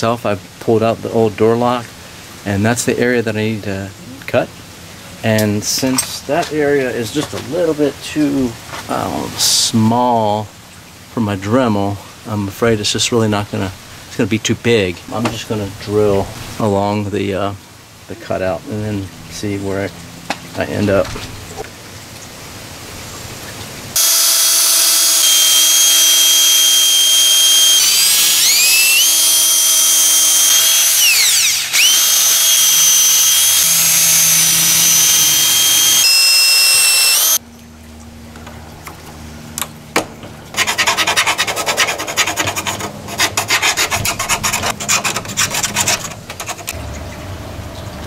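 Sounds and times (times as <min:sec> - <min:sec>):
cordless drill motor whine: 0:24.0 - 0:37.4
drill bit rasping: 0:24.0 - 0:37.4.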